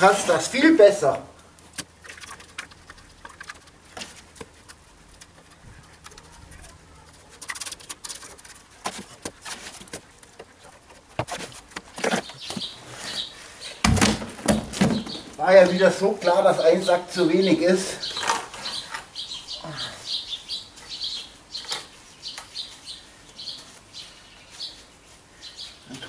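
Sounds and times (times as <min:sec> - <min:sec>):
tub set down with thump: 0:13.8 - 0:15.2.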